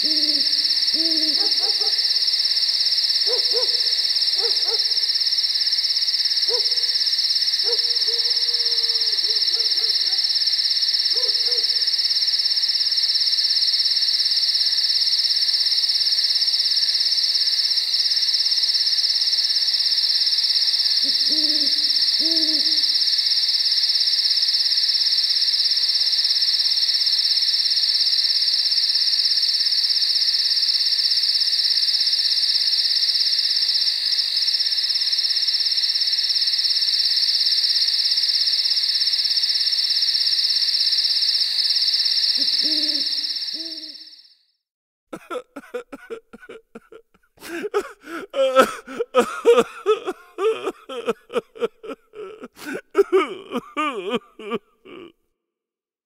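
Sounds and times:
owl hooting: 0.0 - 2.3, 3.2 - 5.1, 6.4 - 7.0, 7.6 - 10.3, 11.1 - 11.9, 21.0 - 23.2, 42.4 - 44.0, 48.4 - 55.0
night insects chorus: 0.0 - 44.5, 45.2 - 55.1.

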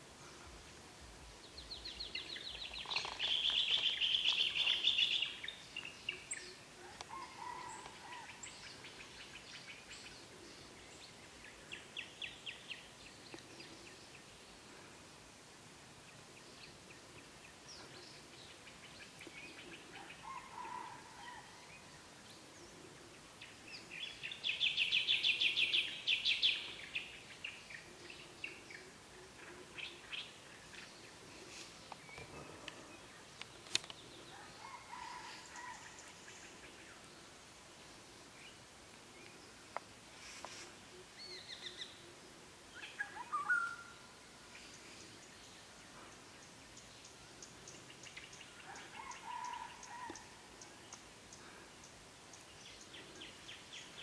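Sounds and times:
bird chirps: 1.6 - 14.2, 42.8 - 54.0
lower bird calls: 40.6 - 54.0.

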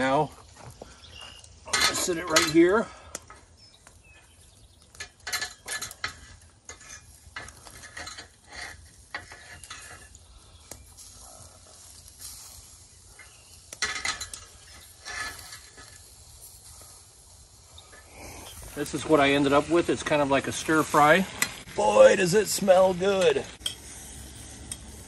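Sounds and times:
light sizzling: 0.0 - 25.0
metal utensil scraping frying pan: 1.7 - 2.8, 4.9 - 10.3, 10.9 - 17.0, 17.6 - 21.7.

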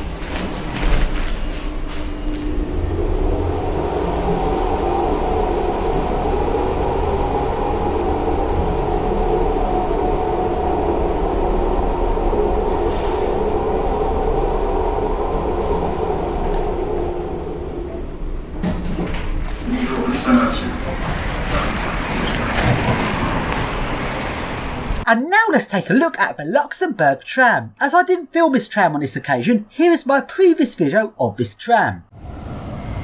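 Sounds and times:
funicular car rumbling on rails: 0.0 - 25.0.

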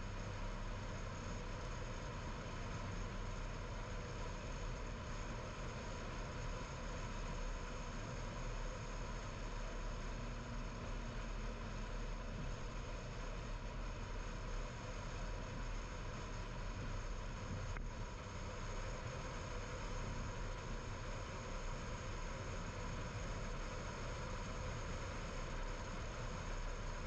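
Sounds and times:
car engine hum and tyre noise: 0.0 - 27.0.

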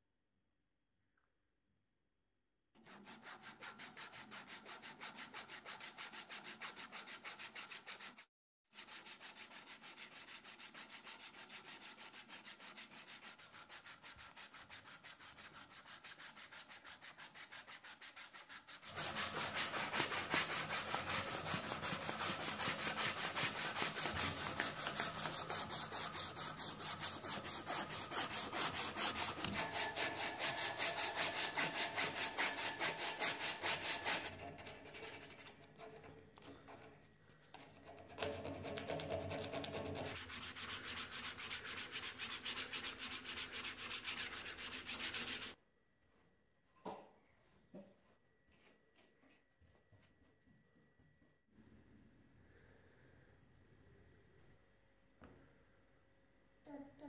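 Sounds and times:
sandpaper rasping on wood: 2.8 - 8.2, 8.8 - 34.3, 39.9 - 45.6.

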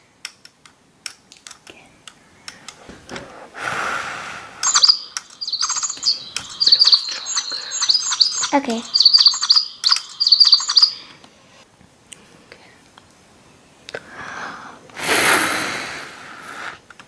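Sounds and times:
breathy blow: 3.4 - 4.6
electronic toy bird chirping: 4.6 - 11.1.

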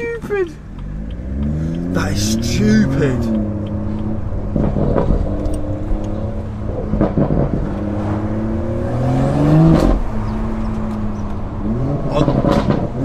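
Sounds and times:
exhaust pops: 0.0 - 8.0, 12.1 - 13.0
car exhaust droning: 0.0 - 13.0.

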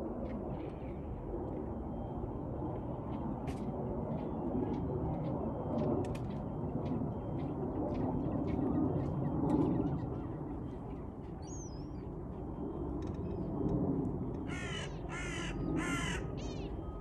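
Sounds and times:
steady low rumble: 0.0 - 17.0.

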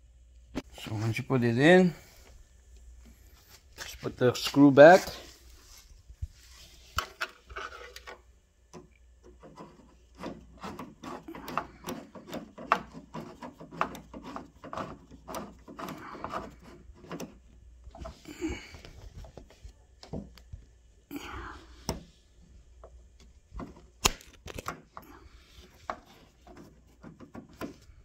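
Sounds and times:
screwdriver clicking and scraping: 8.8 - 17.4.

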